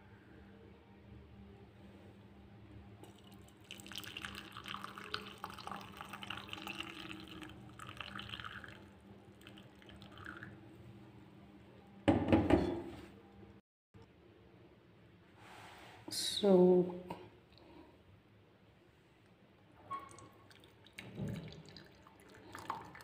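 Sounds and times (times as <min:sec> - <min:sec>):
milk pouring through strainer: 0:03.0 - 0:10.6, 0:20.1 - 0:23.0.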